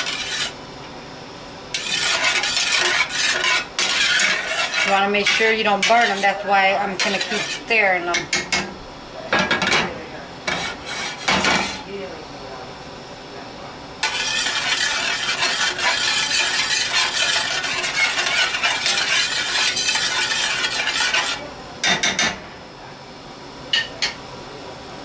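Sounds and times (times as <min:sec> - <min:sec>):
metal spoon scraping skillet: 0:00.0 - 0:00.6, 0:01.7 - 0:08.4, 0:10.5 - 0:11.8, 0:14.0 - 0:21.4
onions sizzling in butter: 0:01.8 - 0:07.7, 0:14.0 - 0:21.4.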